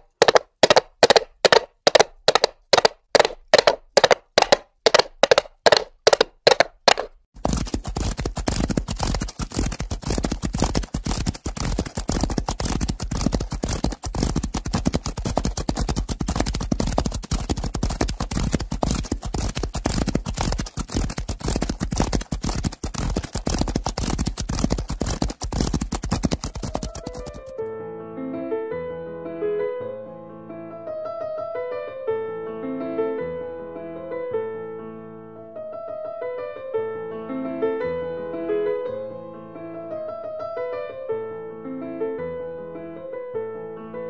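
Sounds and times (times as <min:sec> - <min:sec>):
horse galloping hoofbeats: 0:00.0 - 0:27.6
many horses galloping: 0:00.0 - 0:27.6.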